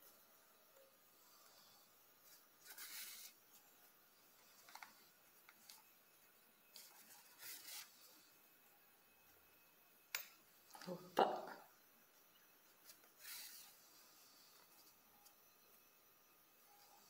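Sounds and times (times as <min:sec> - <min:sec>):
yarn rustling through stitches: 0:01.1 - 0:08.5, 0:12.6 - 0:15.5.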